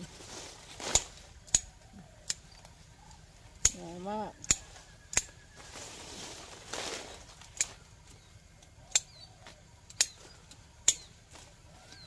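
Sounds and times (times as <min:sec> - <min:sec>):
rustle of leaves and twigs: 0:00.0 - 0:12.0
pruning shears snipping: 0:00.7 - 0:02.8, 0:03.6 - 0:05.5, 0:06.8 - 0:12.0
faint bird chirps: 0:01.4 - 0:12.0.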